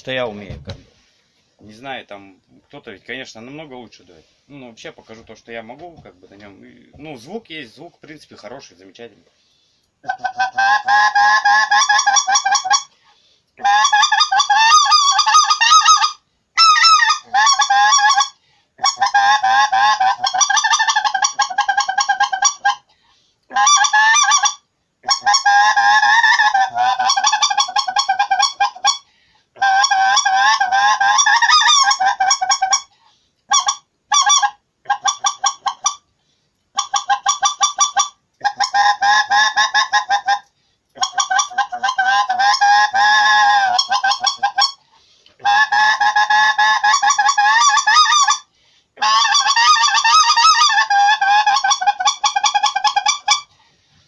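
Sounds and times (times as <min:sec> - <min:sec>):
goose call honking: 0:41.0 - 0:44.8, 0:45.4 - 0:53.5.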